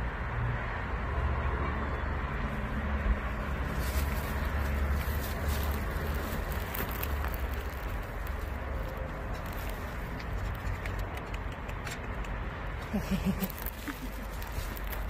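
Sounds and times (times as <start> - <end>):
cat crunching dry kibble: 3.5 - 11.9, 13.0 - 15.0.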